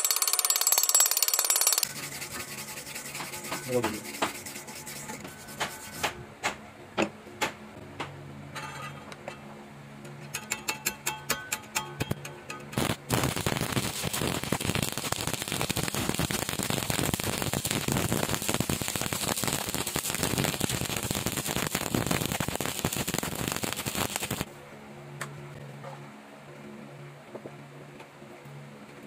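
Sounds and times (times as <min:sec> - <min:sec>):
welding arc crackling: 0:00.0 - 0:06.2, 0:12.0 - 0:24.5.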